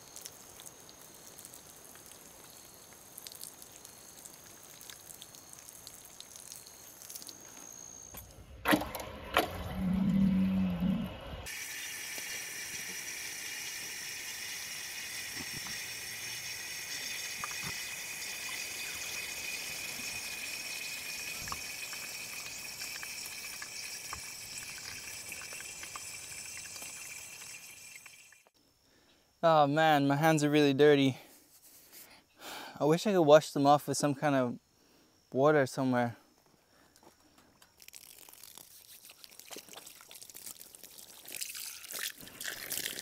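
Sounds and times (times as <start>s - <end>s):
low animal call: 9.5s - 11.5s
water running into trough: 11.4s - 28.5s, 37.8s - 43.0s.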